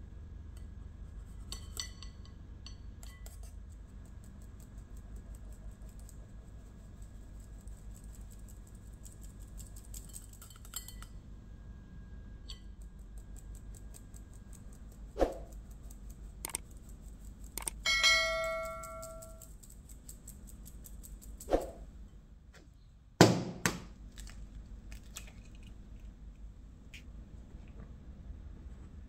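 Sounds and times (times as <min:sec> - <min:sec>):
sieve ticking over bowl: 0:17.5 - 0:21.1
bell ding: 0:17.9 - 0:19.4.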